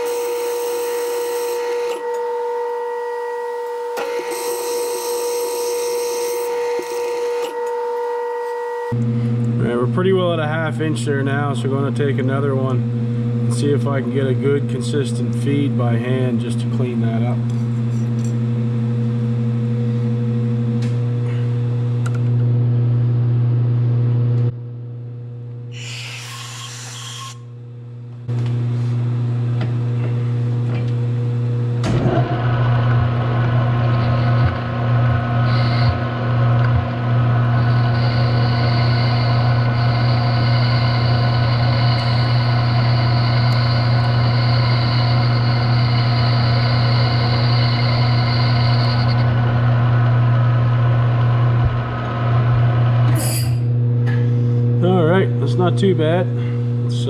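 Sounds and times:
metal lathe running: 0.0 - 2.1, 4.0 - 7.6, 31.9 - 53.7
high whine: 29.6 - 57.0.

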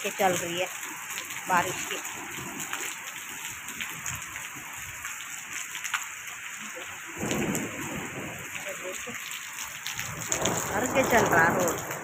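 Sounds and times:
rain falling on road: 0.0 - 12.0
raindrop taps: 0.2 - 12.0.

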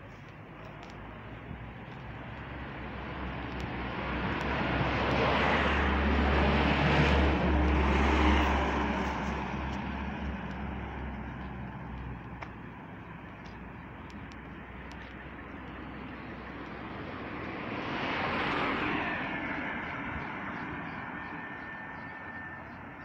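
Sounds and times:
car driving past: 3.8 - 11.8.

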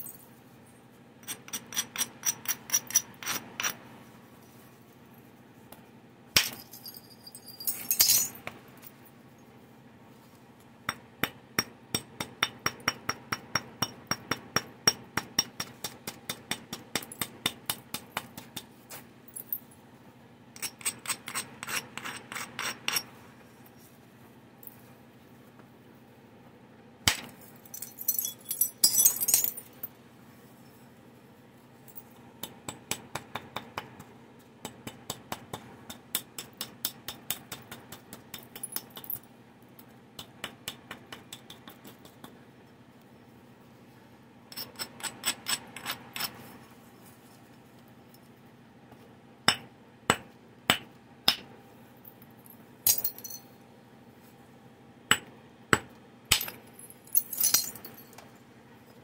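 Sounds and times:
stone clinking clatter: 6.4 - 8.5, 27.5 - 29.9, 52.8 - 53.5, 56.3 - 58.2.

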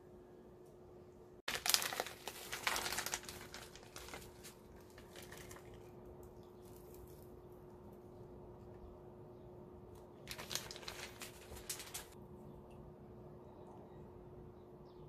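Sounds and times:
plastic packet crinkling: 1.5 - 6.0, 10.2 - 12.2.

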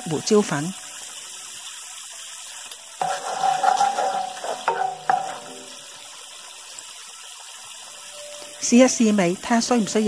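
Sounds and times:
sauce simmering and bubbling: 0.8 - 9.2
wooden spatula scraping through sauce: 3.0 - 5.2
spatula knocking against pan: 3.0 - 5.8.

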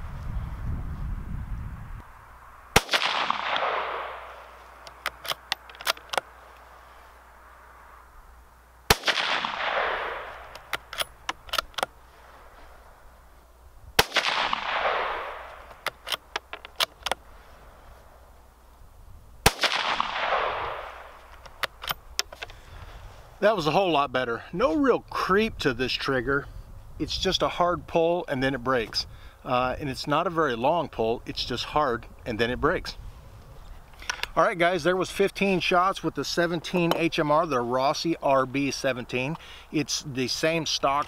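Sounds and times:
rifle shots echoing: 2.7 - 4.6, 8.9 - 11.2, 14.0 - 16.1, 19.4 - 21.3
rifle bolt metallic clicks: 2.8 - 6.3, 8.9 - 12.0, 14.0 - 17.2, 19.5 - 22.6, 33.9 - 34.4.

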